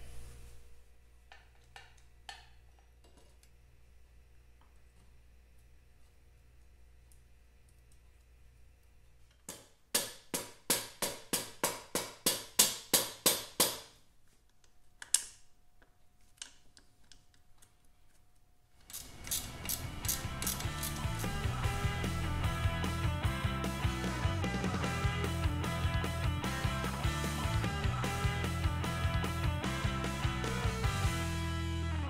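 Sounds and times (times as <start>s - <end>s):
music: 19.2s - 32.0s.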